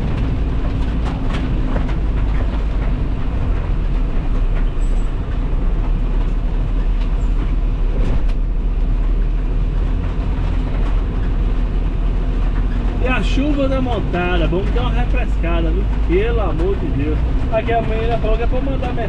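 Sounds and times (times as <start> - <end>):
vehicle rumble on wet road: 0.0 - 19.0
heavy rain on windshield: 8.9 - 19.0.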